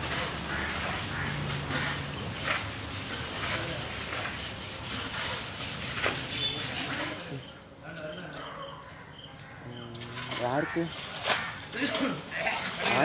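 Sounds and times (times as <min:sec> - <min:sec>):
scrubbing wet hide: 0:00.0 - 0:07.5
water hissing from hose: 0:00.0 - 0:07.5.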